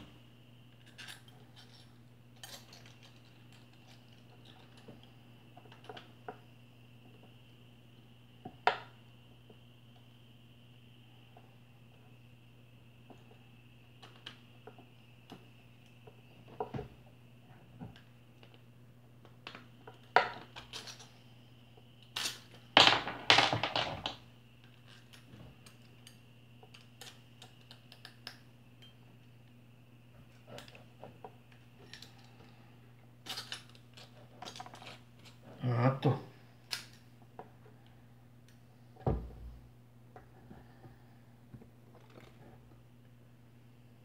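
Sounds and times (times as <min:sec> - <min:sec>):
faint steady hum: 0:00.0 - 0:44.0
metal parts clicking and clinking: 0:00.8 - 0:04.9, 0:20.5 - 0:21.1, 0:33.2 - 0:35.4.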